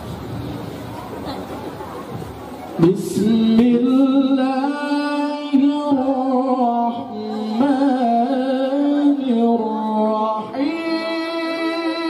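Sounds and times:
man chanting melodically: 2.8 - 12.0.

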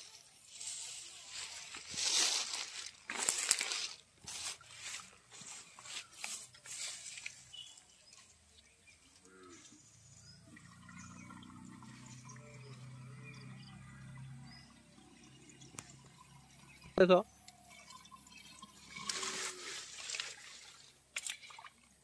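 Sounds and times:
hands splashing through pond water: 0.7 - 7.6, 18.9 - 22.0.

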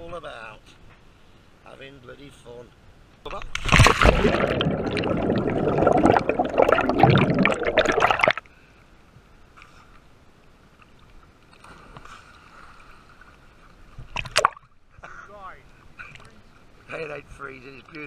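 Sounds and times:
faint steady hum: 0.0 - 18.0
water churning and bubbling: 3.5 - 8.4.

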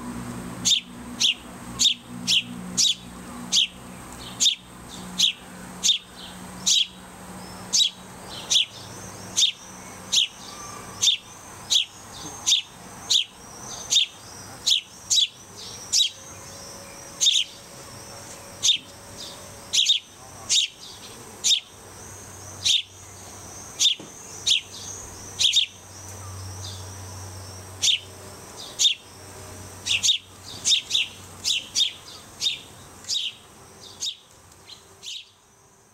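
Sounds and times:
fledglings begging cheeps: 5.2 - 26.7.

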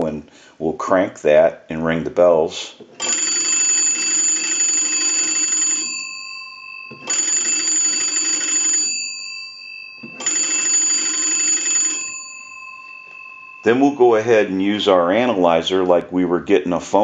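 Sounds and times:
telephone bells ringing: 3.0 - 15.6.

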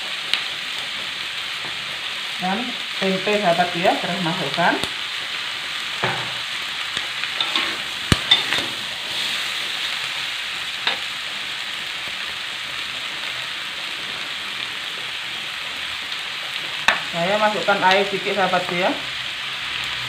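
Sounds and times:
food sizzling in a wok: 0.0 - 20.0
metal spatula scraping a pan: 7.3 - 10.0.

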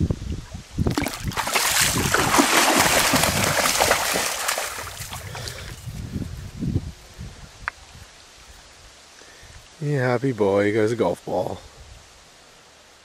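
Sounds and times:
dog splashing through water: 0.9 - 5.7.

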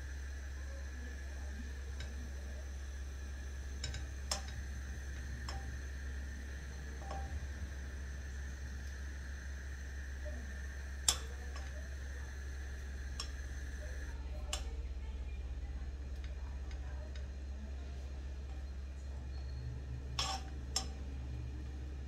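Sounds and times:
spatula tapping saucepan: 3.8 - 5.8, 7.0 - 7.4, 20.2 - 21.0.

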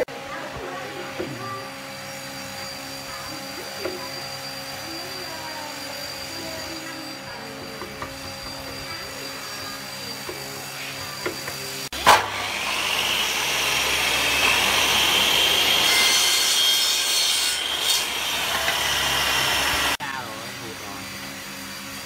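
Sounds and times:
miter saw cutting wood: 0.0 - 22.0
hand tool scraping and tapping: 6.8 - 9.0.

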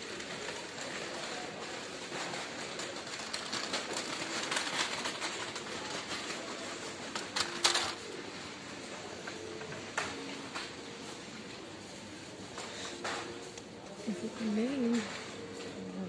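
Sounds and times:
small clicks and clatters: 0.0 - 8.0
indoor background din: 0.0 - 16.0.

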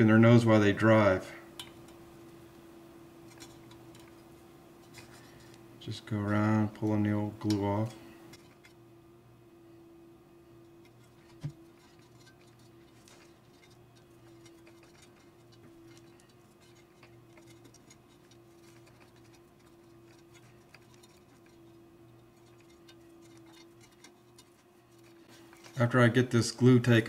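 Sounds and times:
steady low hum: 0.0 - 27.0
fingers scratching glue off metal: 10.8 - 25.8.

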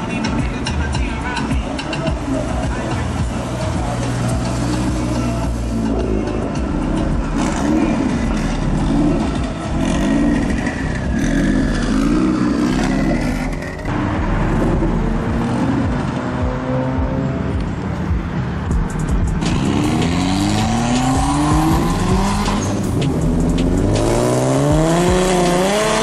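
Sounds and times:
car engines revving: 0.0 - 26.0
car engine accelerating: 2.5 - 26.0.

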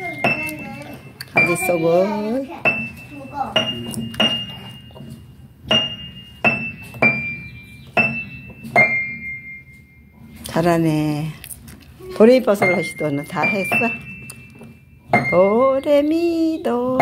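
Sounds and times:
piano single notes: 0.0 - 10.4, 12.4 - 17.0.

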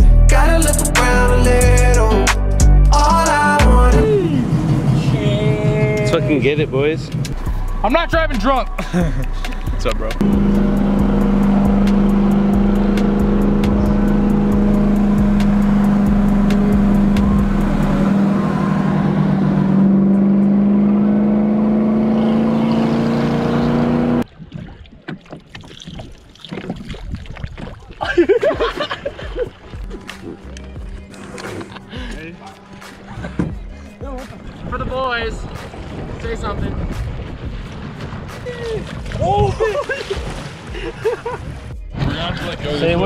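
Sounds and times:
loud motor engine running: 10.2 - 24.2.

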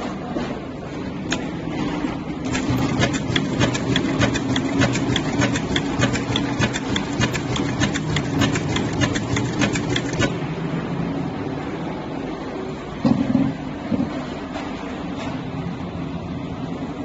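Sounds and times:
sewing machine motor hum: 2.4 - 10.4.

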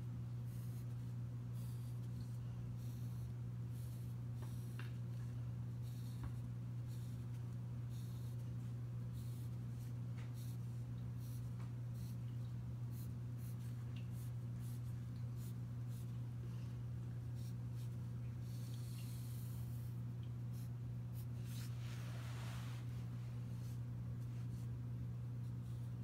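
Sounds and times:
steady low hum: 0.0 - 26.0
pencil scratching on paper: 0.5 - 4.8, 5.8 - 8.4, 9.1 - 12.2.

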